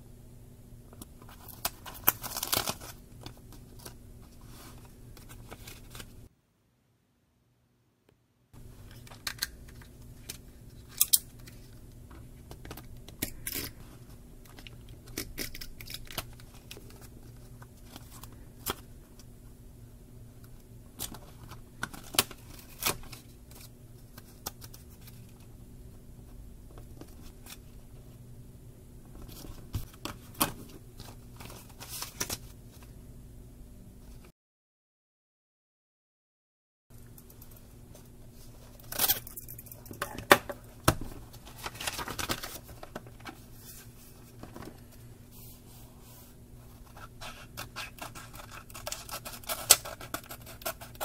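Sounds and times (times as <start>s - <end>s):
low steady hum: 0.0s - 34.3s, 36.9s - 51.0s
paper crinkling and rustling: 1.2s - 6.3s, 12.4s - 18.9s, 29.2s - 32.9s, 40.9s - 51.0s.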